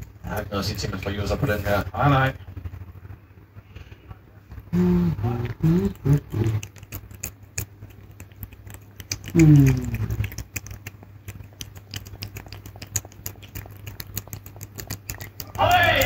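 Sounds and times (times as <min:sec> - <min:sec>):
cat licking and chewing: 0:00.0 - 0:01.9, 0:05.1 - 0:16.0
steady low hum: 0:00.0 - 0:16.0.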